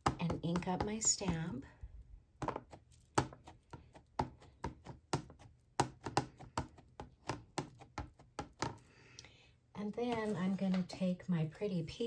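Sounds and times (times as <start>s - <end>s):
ink pad tapping on rubber stamp: 2.4s - 8.8s.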